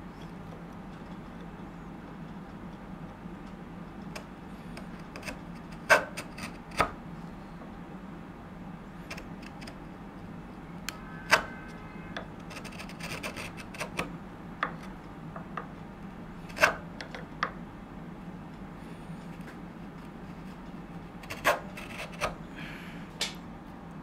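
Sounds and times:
chisel scraping wood: 4.2 - 7.0, 9.0 - 9.8, 10.9 - 15.0, 16.4 - 17.2, 21.2 - 22.4.

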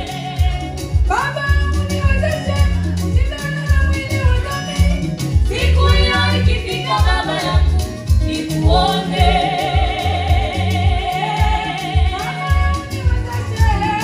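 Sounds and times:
woman singing gospel: 0.0 - 14.0
steady low beat: 4.2 - 13.9.

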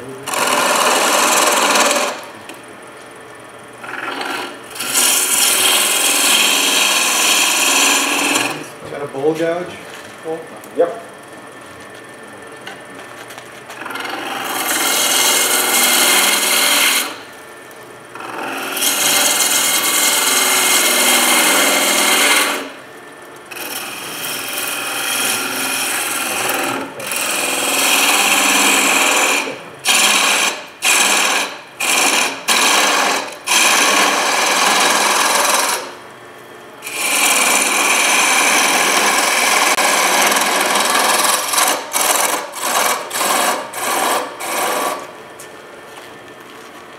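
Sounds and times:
lathe tool cutting with rasping hiss: 0.0 - 2.4, 3.8 - 8.8, 13.8 - 17.3, 18.2 - 22.8, 23.5 - 36.0, 36.8 - 45.1.

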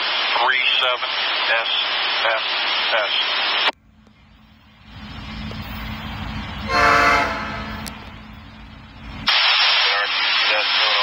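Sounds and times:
crackly radio voices from scanner: 0.0 - 3.8, 9.3 - 11.0
low rumble of oncoming train: 3.8 - 9.3
locomotive air horn blast: 6.6 - 8.1.

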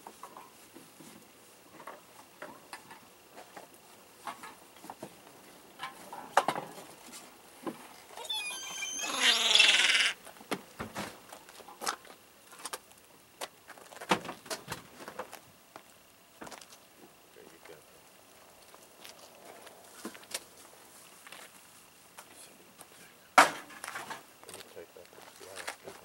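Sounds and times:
gulls calling: 8.2 - 10.2.

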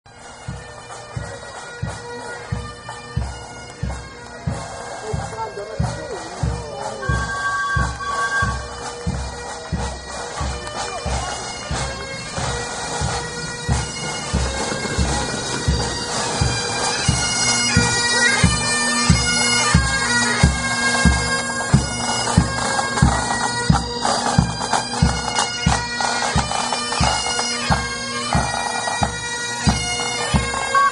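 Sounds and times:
bagpipe band playing: 0.1 - 30.9
low drum beat: 3.2 - 23.8.

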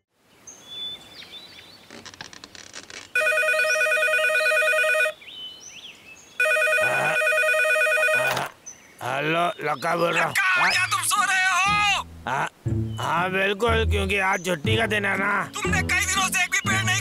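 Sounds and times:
telephone ringing: 3.2 - 5.2, 6.4 - 8.5.

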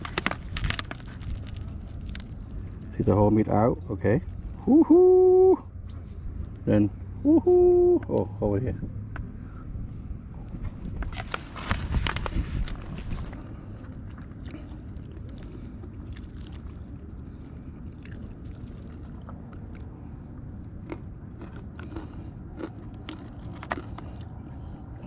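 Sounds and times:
chewing: 0.0 - 2.9, 10.6 - 25.0
crackles of crisp fish and foil: 0.0 - 3.1, 10.9 - 18.8
handling rustle: 10.7 - 13.4.

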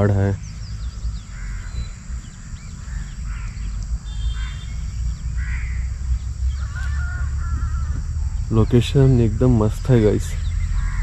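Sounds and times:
birds calling: 0.0 - 11.0
wind rumble on microphone: 0.0 - 11.0
crows cawing: 0.8 - 8.4, 10.5 - 11.0.

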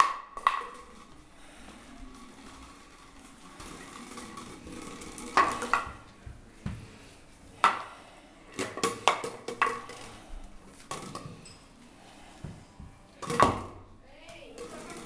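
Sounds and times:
hard object clattering on tiles: 0.0 - 1.2, 3.6 - 6.1, 7.6 - 11.6, 12.4 - 13.8, 14.6 - 15.0.

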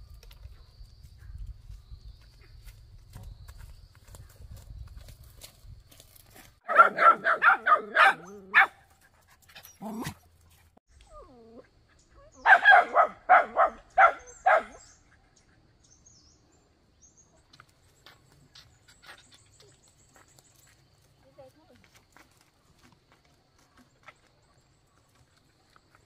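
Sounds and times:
dog barking: 6.6 - 8.9, 12.4 - 14.9.

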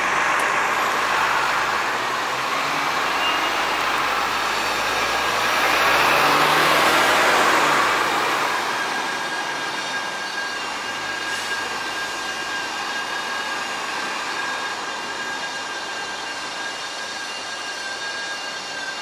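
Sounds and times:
vehicle passing: 0.0 - 9.6
city traffic noise: 0.0 - 19.0
thin high whine: 0.0 - 19.0.

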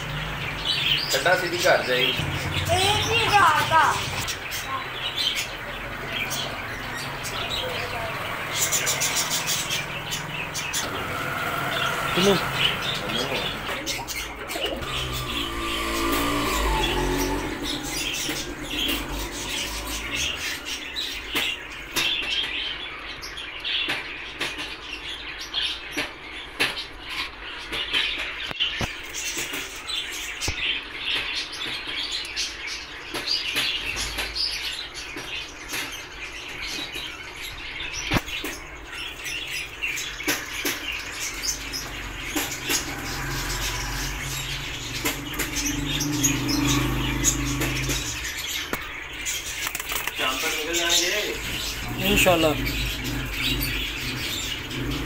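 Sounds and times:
birds chirping: 0.0 - 55.0
wings fluttering: 40.2 - 55.0
sharp clicks: 49.5 - 50.3.

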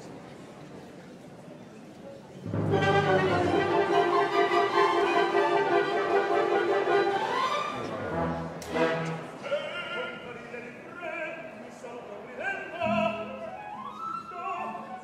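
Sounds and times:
orchestra playing: 2.4 - 9.6
man singing opera: 9.4 - 15.0.

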